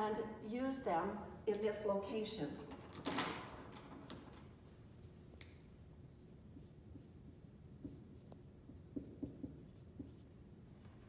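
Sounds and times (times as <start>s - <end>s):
marker tapping on whiteboard: 6.6s - 10.2s.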